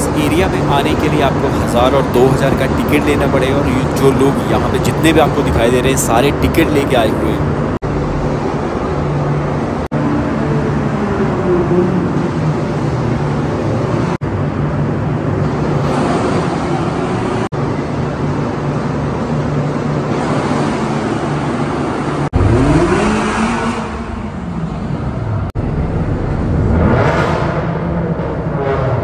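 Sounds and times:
car engines running loud exhausts: 0.0 - 29.0
sharp engine rev: 22.2 - 24.6, 26.2 - 29.0.

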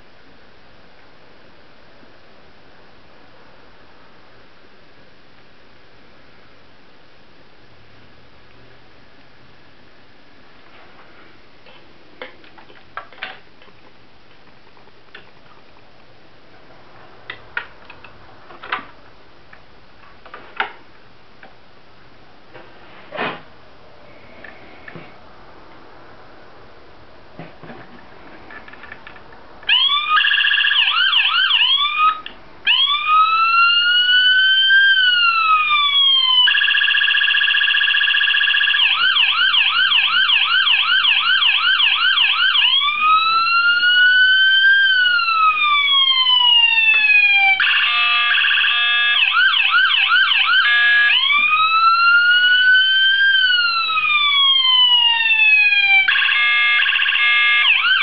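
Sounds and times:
electronic police siren: 29.7 - 58.0.

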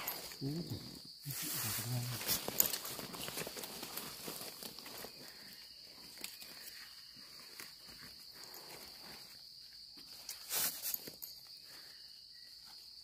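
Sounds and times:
crackling of leaf litter and soil: 0.0 - 9.3
high-pitched insect drone: 0.0 - 13.0.

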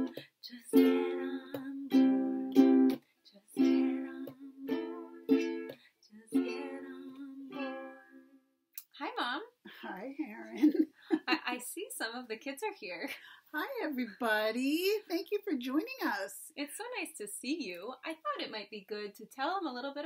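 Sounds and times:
ukuleles strumming chords: 0.0 - 8.5.

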